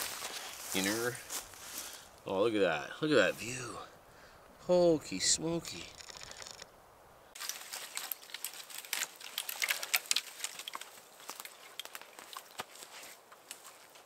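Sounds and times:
rustling and crackling: 0.0 - 2.1, 7.3 - 14.0
small sharp clicks: 5.9 - 6.7.

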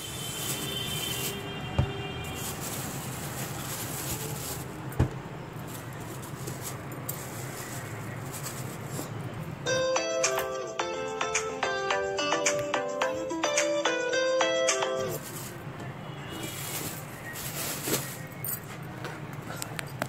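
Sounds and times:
plastic bag rustling and crinkling: 0.0 - 5.0, 5.6 - 9.2, 15.1 - 15.6, 16.4 - 18.6.

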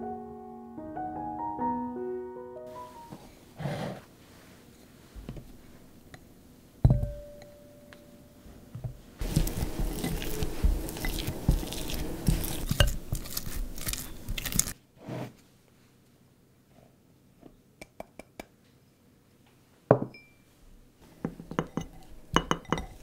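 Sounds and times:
spatula squishing and scraping butter: 9.2 - 14.8, 21.4 - 23.0.

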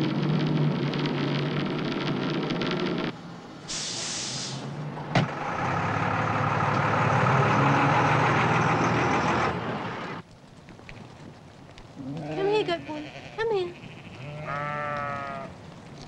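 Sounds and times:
bus engine running: 0.0 - 10.2
air brake hiss: 3.7 - 4.8.

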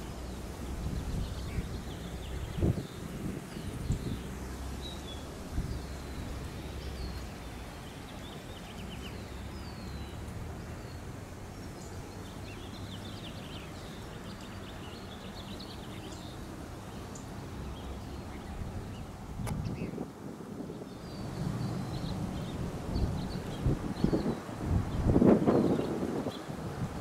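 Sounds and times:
wind buffeting microphone: 0.0 - 10.6, 17.4 - 27.0
small birds calling: 0.0 - 20.0, 20.7 - 26.6.

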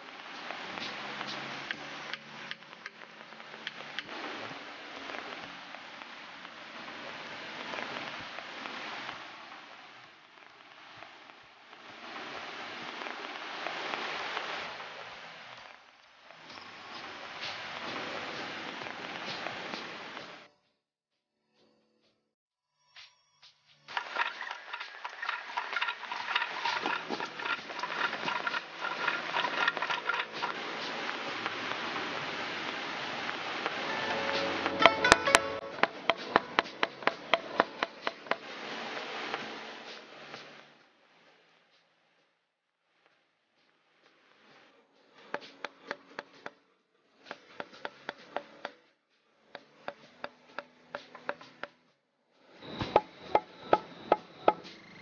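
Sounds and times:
hand drill rasping into bamboo: 23.9 - 31.5, 35.8 - 38.4
hammer tapping on bamboo: 34.7 - 38.4, 45.3 - 46.6, 47.3 - 48.8, 49.5 - 51.8, 52.8 - 54.7.

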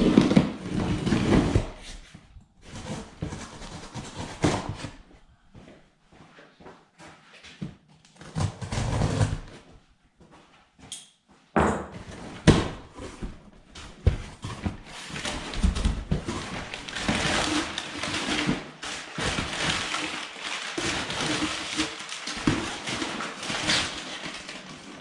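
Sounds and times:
packing paper rustling: 14.6 - 25.0.

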